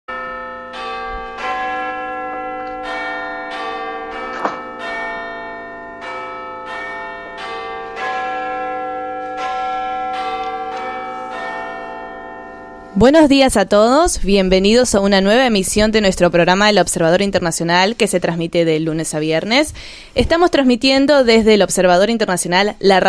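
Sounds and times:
bells ringing: 0:00.1 - 0:13.8.

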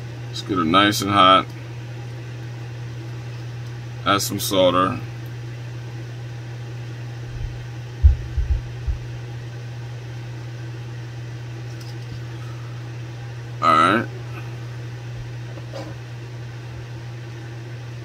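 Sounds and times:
steady low hum: 0:00.0 - 0:18.0
dull low thumps: 0:07.3 - 0:09.2.

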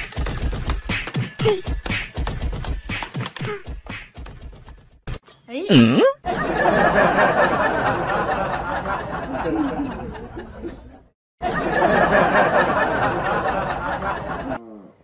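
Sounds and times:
group of people laughing: 0:06.2 - 0:14.6.

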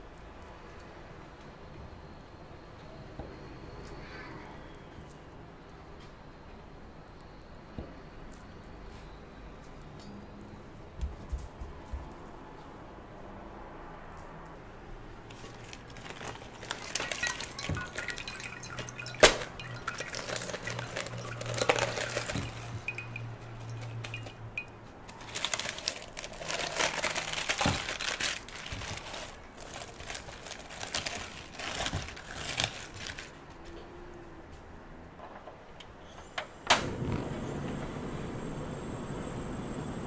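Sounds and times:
lettuce leaves tearing: 0:15.3 - 0:22.9, 0:25.1 - 0:33.4
dripping water: 0:15.9 - 0:26.6.

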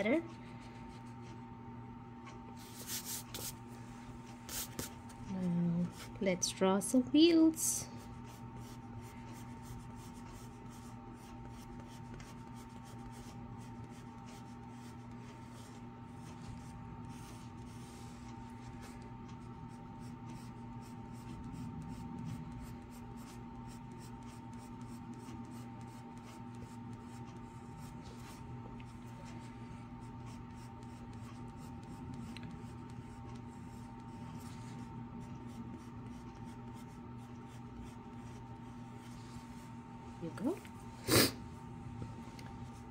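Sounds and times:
steady low hum: 0:00.0 - 0:42.9
pencil scratching on paper: 0:02.6 - 0:03.6, 0:07.9 - 0:39.6.

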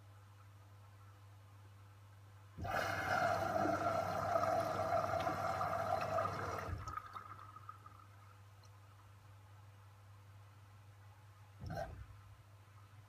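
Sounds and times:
low machine hum: 0:02.2 - 0:09.6
water rushing into washing machine: 0:02.6 - 0:08.1.

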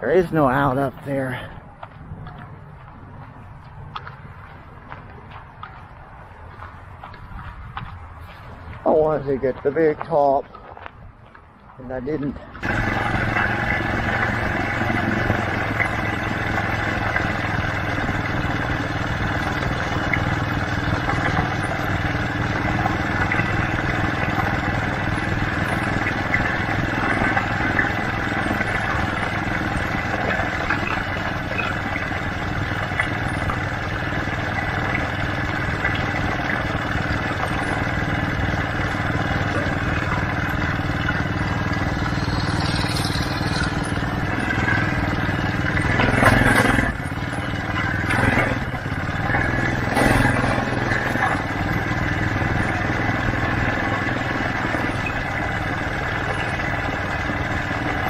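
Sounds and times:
tyre and road noise: 0:00.0 - 0:58.0
small vehicle motor running: 0:12.5 - 0:58.0.

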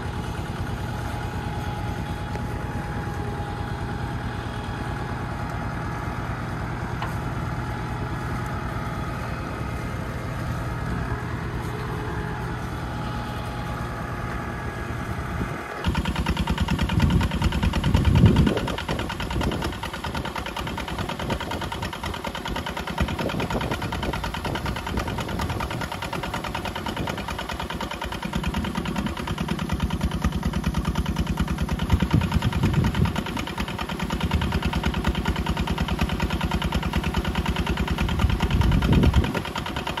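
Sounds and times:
engine running with fast pulse: 0:00.0 - 0:40.0.

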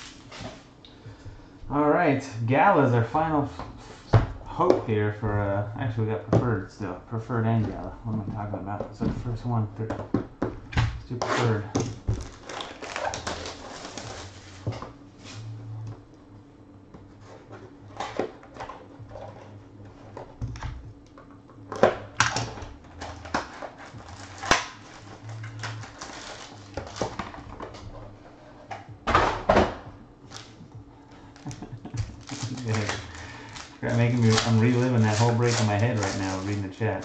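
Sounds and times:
shrink wrap crinkling: 0:11.4 - 0:14.7, 0:22.3 - 0:27.5, 0:31.2 - 0:37.0.

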